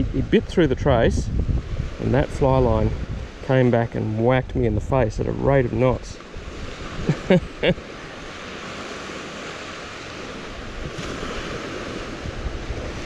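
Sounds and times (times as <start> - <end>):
wind on microphone: 0.0 - 13.0
surf washing onto sand: 5.3 - 13.0.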